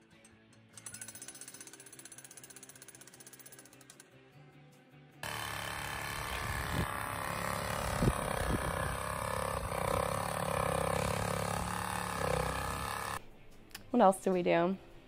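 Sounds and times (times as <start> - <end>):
cordless power tool whining: 5.2 - 13.2.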